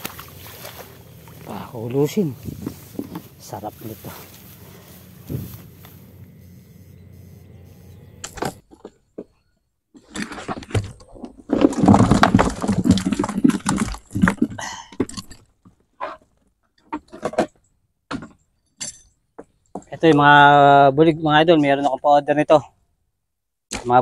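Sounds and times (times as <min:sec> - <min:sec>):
fish splashing in water container: 0:00.0 - 0:01.5
low outdoor noise: 0:00.0 - 0:10.6.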